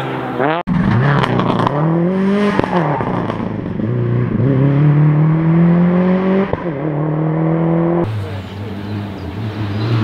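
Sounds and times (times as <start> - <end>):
rally car accelerating past: 8.8 - 10.0.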